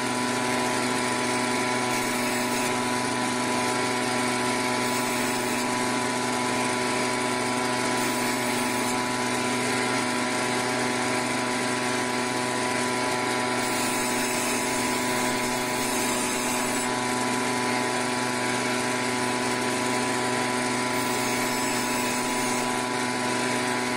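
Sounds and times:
band saw motor hum and whine: 0:00.0 - 0:23.9
saw blade cutting fish: 0:01.0 - 0:03.4, 0:04.0 - 0:06.2, 0:07.8 - 0:10.0, 0:13.1 - 0:17.0, 0:20.1 - 0:23.9.

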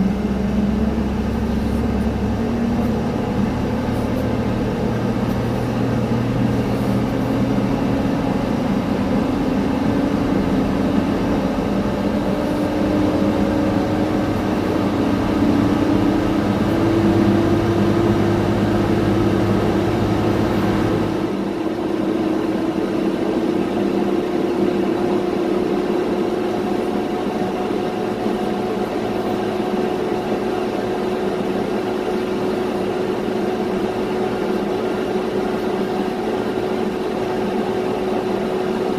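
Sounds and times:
aircraft whine: 0:00.0 - 0:38.9
tug engine humming: 0:00.0 - 0:38.9.

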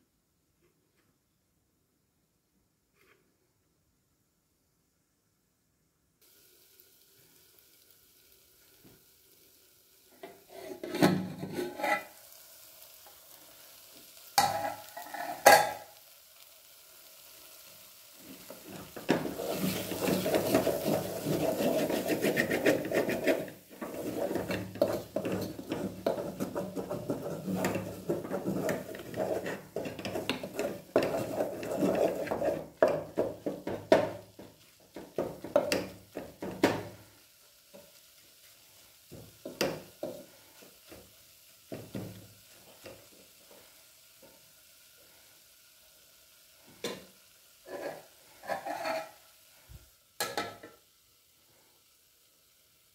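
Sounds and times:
food sizzling: 0:06.2 - 0:52.9
spatula scraping a pot: 0:10.2 - 0:12.2, 0:14.4 - 0:15.8, 0:18.7 - 0:34.1, 0:47.6 - 0:49.2.

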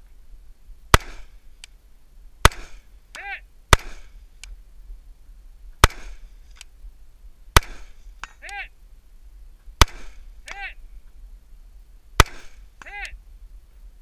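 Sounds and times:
rifle shots with echo: 0:00.9 - 0:01.4, 0:02.4 - 0:02.9, 0:03.7 - 0:04.2, 0:05.8 - 0:06.3, 0:07.5 - 0:08.0, 0:09.8 - 0:10.3, 0:12.2 - 0:12.7
faint sharp tick: 0:04.4 - 0:04.6.

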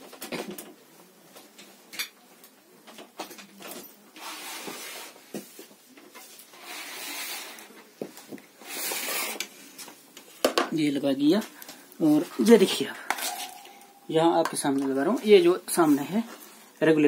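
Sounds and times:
soft hissing noise: 0:03.5 - 0:17.0.

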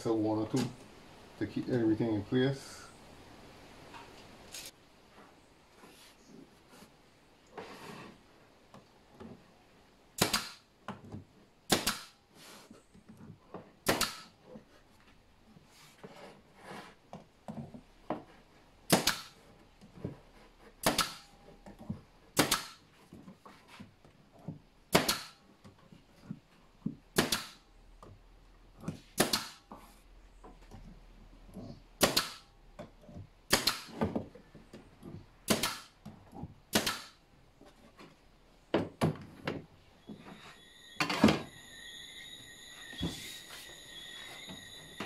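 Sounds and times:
nail gun firing: 0:10.2 - 0:10.7, 0:11.7 - 0:12.2, 0:13.8 - 0:14.4, 0:18.9 - 0:19.4, 0:20.8 - 0:21.3, 0:22.4 - 0:22.8, 0:24.9 - 0:25.4, 0:27.1 - 0:27.6, 0:29.2 - 0:29.6, 0:32.0 - 0:32.4, 0:33.5 - 0:34.0, 0:35.5 - 0:36.0, 0:36.7 - 0:37.2.

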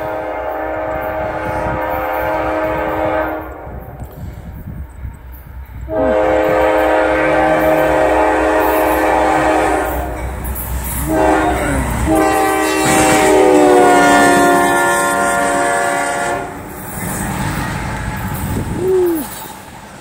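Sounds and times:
locomotive air horn blasts: 0:00.0 - 0:04.0, 0:05.9 - 0:10.2, 0:11.0 - 0:16.6.

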